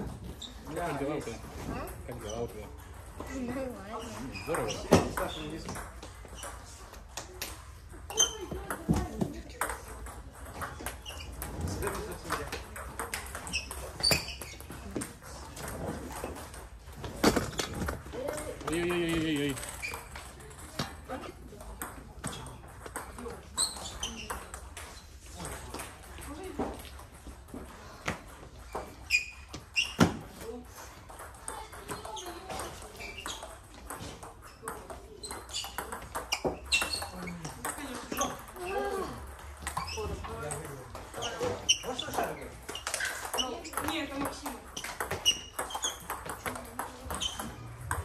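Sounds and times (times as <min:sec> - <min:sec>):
footsteps in a sports hall: 0:00.0 - 0:10.0
high squeak: 0:32.0 - 0:33.6, 0:35.2 - 0:37.2, 0:47.1 - 0:47.9.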